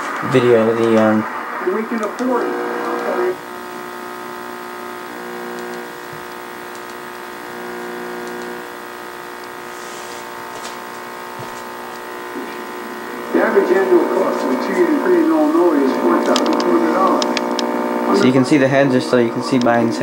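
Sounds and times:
television speaker electrical buzz: 0.0 - 20.0
faint clicks: 5.5 - 5.9, 6.6 - 7.1, 8.2 - 8.5.

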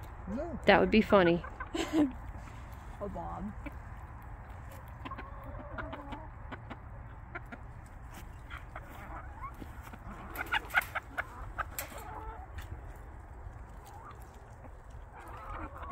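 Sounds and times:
chickens clucking: 0.6 - 15.9
sharp chicken calls: 3.6 - 15.9.

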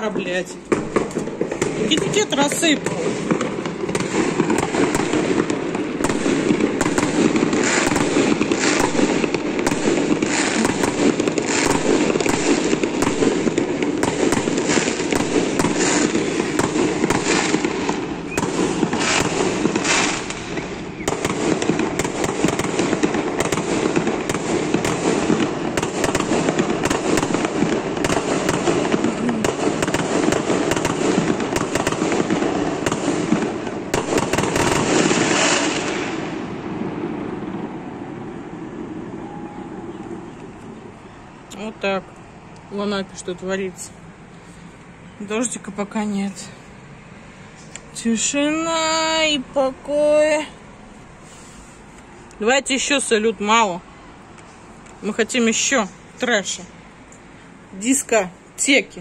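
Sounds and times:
fireworks bangs and crackling: 0.0 - 41.0.

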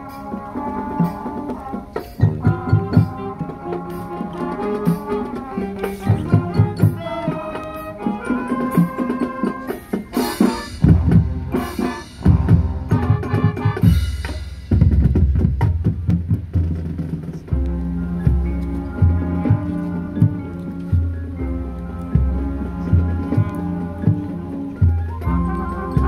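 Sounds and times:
brass holding notes: 0.0 - 14.9, 17.4 - 26.0
marching band playing: 0.0 - 26.0
bass drum and snare hits: 10.5 - 20.4.

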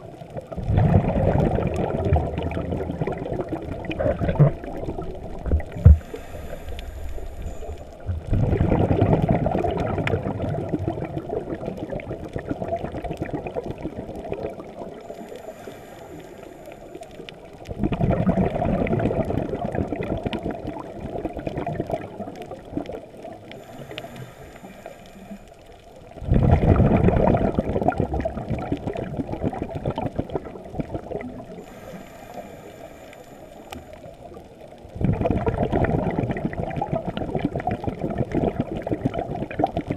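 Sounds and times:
rush of exhaled bubbles: 0.0 - 25.4, 26.1 - 39.9
diver breathing through regulator: 5.8 - 8.0, 15.1 - 17.0, 23.6 - 25.7, 31.6 - 34.0.

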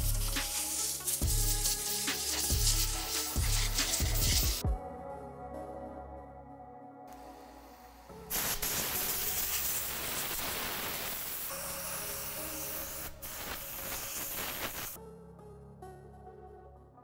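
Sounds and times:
compressed air hissing: 0.0 - 4.6, 7.1 - 15.0
background music: 0.0 - 17.0.

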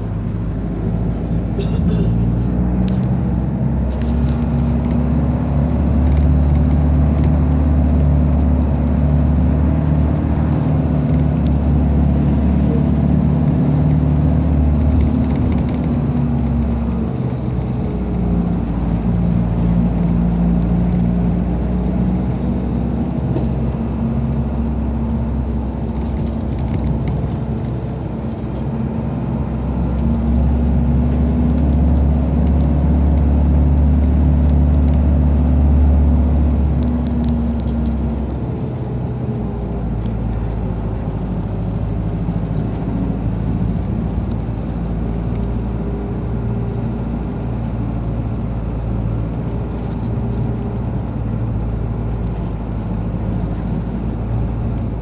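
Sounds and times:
car interior engine and road rumble: 0.0 - 55.0.

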